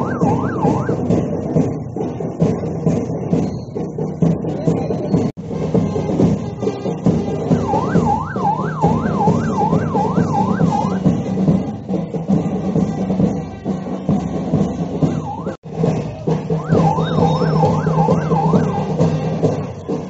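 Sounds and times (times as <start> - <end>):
siren yelping: 0.0 - 1.1, 7.5 - 11.1, 15.1 - 15.6, 16.6 - 19.2
steady music: 5.7 - 11.6, 15.0 - 20.0.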